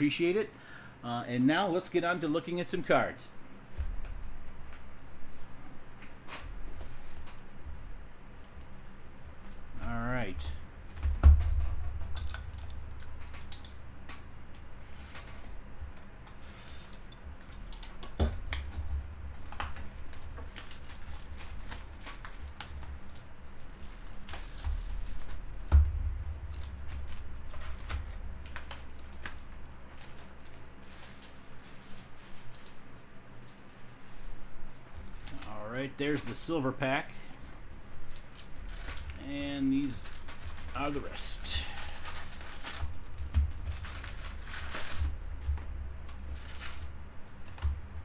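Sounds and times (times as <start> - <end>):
handling thumps: 24.0 - 29.6.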